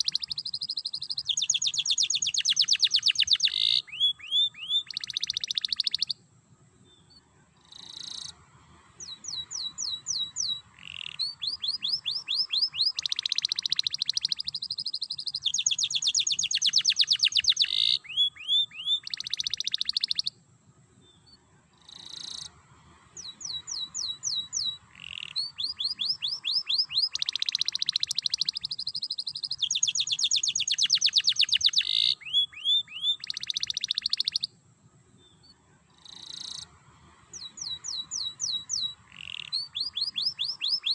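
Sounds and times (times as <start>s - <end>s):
canary singing trills: 0.0s - 6.2s, 9.0s - 20.4s, 23.2s - 34.5s, 37.3s - 40.9s.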